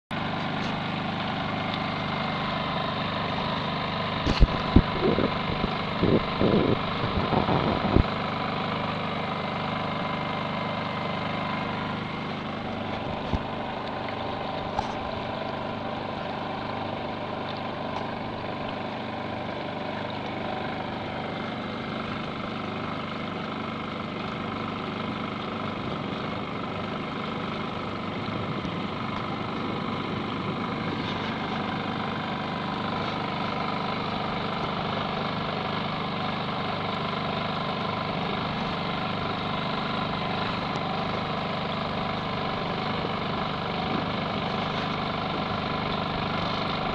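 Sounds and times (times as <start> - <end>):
portable generator idling: 0.2 - 46.9.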